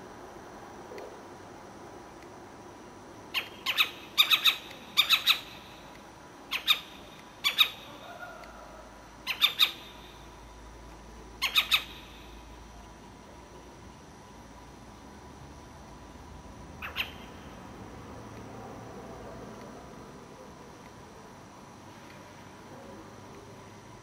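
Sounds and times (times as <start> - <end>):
owl squawking calls: 3.3 - 5.8, 6.5 - 10.2, 11.4 - 12.4, 16.8 - 17.4.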